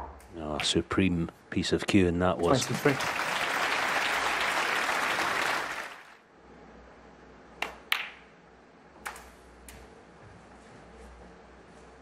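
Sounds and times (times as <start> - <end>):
audience applauding: 2.4 - 6.2.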